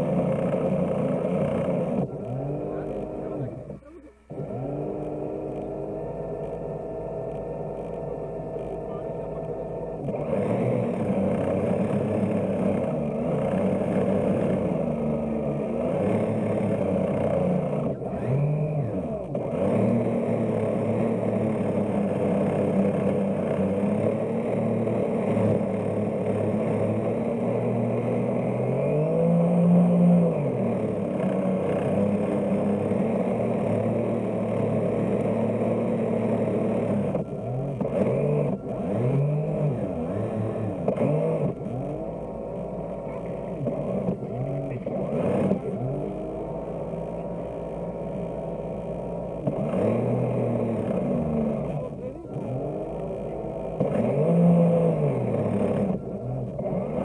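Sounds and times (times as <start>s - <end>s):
model boat motor humming: 0.0s - 57.0s.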